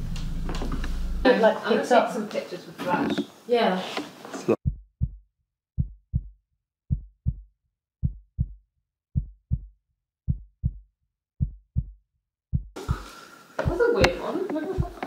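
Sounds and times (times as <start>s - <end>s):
heartbeat thumps: 4.6s - 8.6s, 9.2s - 15.0s.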